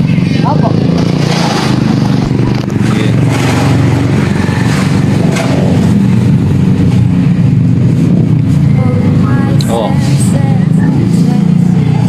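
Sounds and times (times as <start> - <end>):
street traffic: 0.0 - 12.0
vehicle engine running: 0.0 - 12.0.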